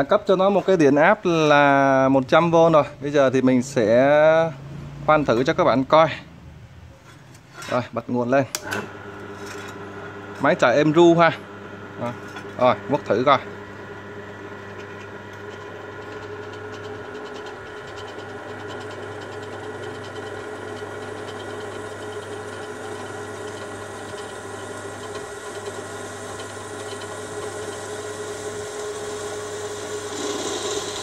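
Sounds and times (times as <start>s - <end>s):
drill press motor humming: 8.6s - 31.0s
drill bit cutting steel: 14.4s - 31.0s.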